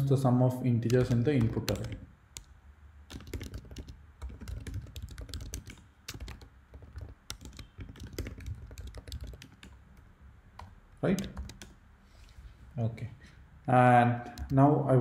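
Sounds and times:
keyboard typing clicks: 0.8s - 2.5s, 3.1s - 11.8s.

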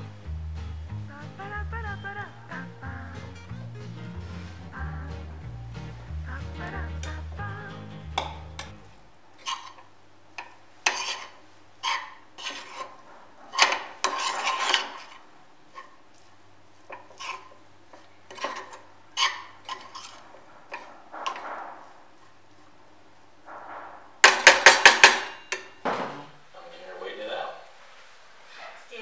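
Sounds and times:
metal spoon scraping frying pan: 8.1s - 8.8s, 9.4s - 16.0s, 16.9s - 21.9s.

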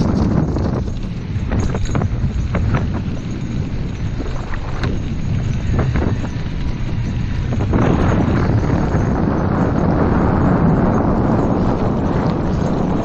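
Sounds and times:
wheels rolling over dirt trail: 0.0s - 13.0s
wind buffeting microphone: 0.0s - 13.0s.

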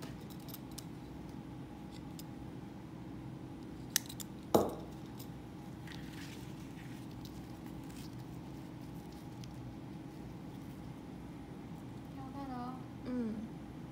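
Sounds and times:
steady low hum: 0.0s - 13.9s
webbing rustling and clicking: 5.8s - 11.0s.

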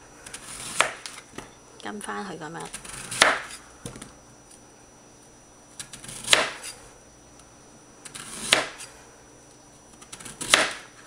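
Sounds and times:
knife chopping on cutting board: 0.6s - 1.2s, 3.1s - 3.6s, 6.2s - 6.7s, 8.4s - 8.9s, 10.4s - 10.9s.

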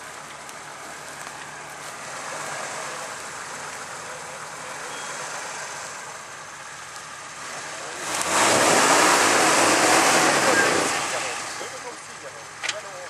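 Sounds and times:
engine running under load: 0.0s - 13.0s.

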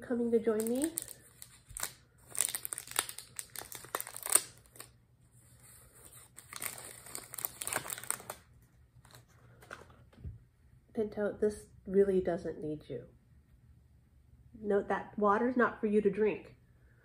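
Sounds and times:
plastic bag crinkling: 0.1s - 5.0s, 5.6s - 9.9s.

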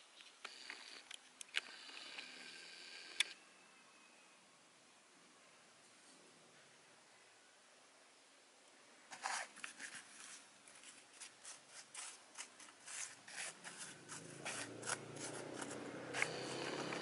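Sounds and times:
fingers scratching seeds in palm: 9.2s - 17.0s.

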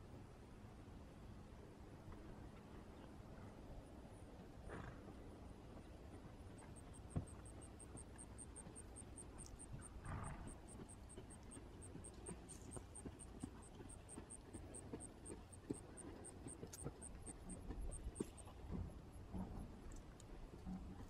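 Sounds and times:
horse hoofbeats on sand: 4.7s - 19.8s.

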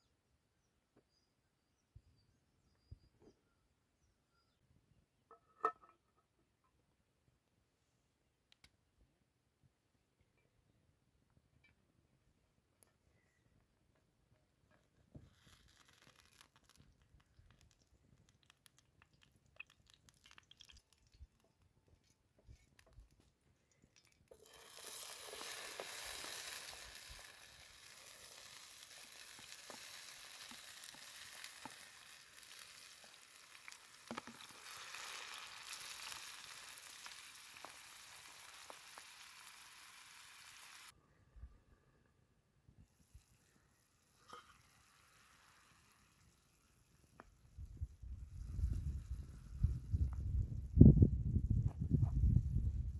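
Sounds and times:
faint crackles: 12.8s - 41.0s, 42.7s - 50.7s
tomatoes sizzling in hot oil: 15.1s - 21.4s, 24.0s - 40.9s, 43.1s - 50.0s.

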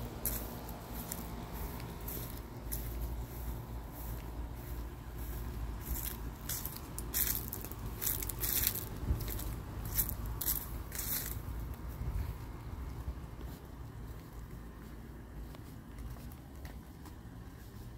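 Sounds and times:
footsteps crunching on dry leaves: 0.0s - 17.9s.

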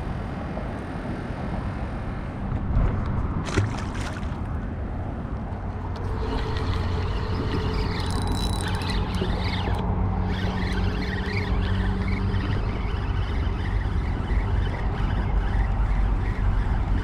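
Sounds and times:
steady low rumble: 0.0s - 10.2s
fishing reel handle turning: 5.9s - 14.8s.

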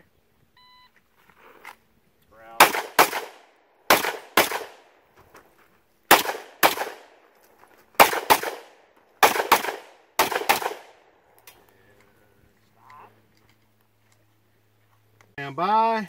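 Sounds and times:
handgun shots: 2.6s - 4.8s, 6.1s - 7.1s, 8.0s - 11.0s.

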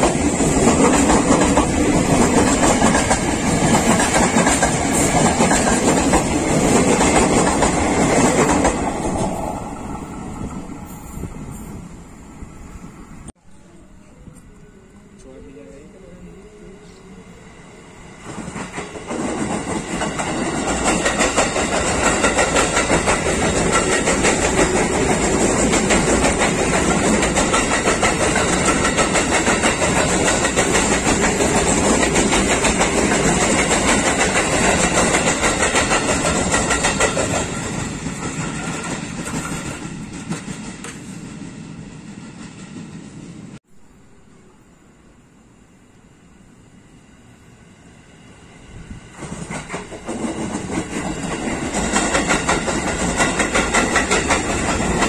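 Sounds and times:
train wheels clattering over rails: 0.0s - 9.4s, 18.2s - 43.2s, 49.1s - 55.0s.

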